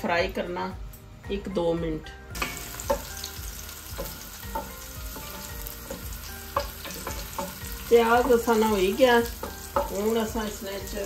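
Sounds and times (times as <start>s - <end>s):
onions sizzling in oil: 2.3s - 11.0s
wooden spoon tapping and scraping pot: 4.0s - 10.3s.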